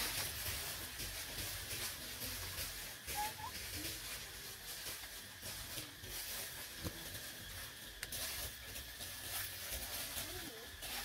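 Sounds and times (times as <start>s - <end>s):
faint rustling branches: 0.0s - 11.0s
monkey squeak: 3.1s - 3.6s.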